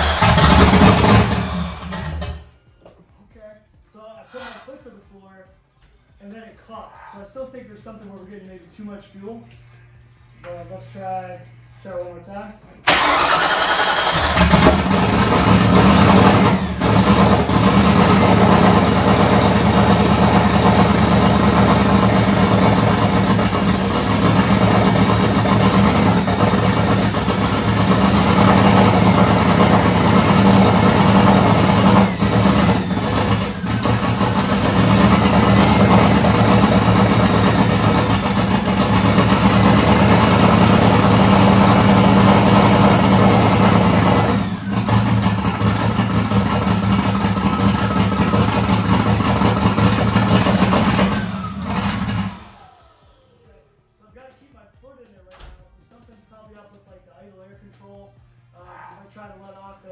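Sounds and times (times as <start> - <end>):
loud engine running: 0.0 - 2.7, 12.9 - 53.6.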